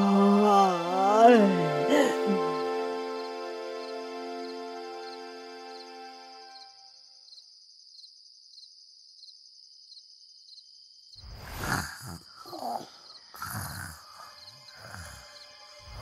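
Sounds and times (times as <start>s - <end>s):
crickets chirping: 2.0s - 16.0s
cartoon characters snoring: 11.3s - 16.0s.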